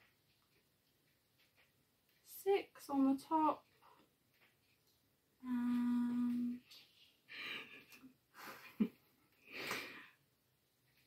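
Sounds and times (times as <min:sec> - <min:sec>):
person humming: 0:05.4 - 0:06.6
soft breathy exhalations: 0:09.4 - 0:10.2.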